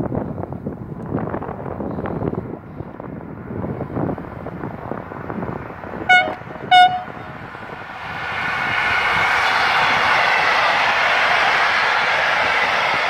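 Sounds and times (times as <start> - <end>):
freight train passing rumble: 0.0 - 13.0
locomotive horn toots: 6.1 - 7.4.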